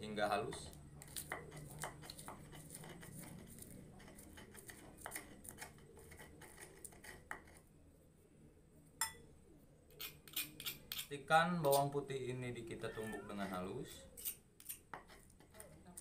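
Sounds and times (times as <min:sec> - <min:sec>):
stone pestle grinding in mortar: 0:00.4 - 0:07.6, 0:09.9 - 0:11.8, 0:14.2 - 0:16.0.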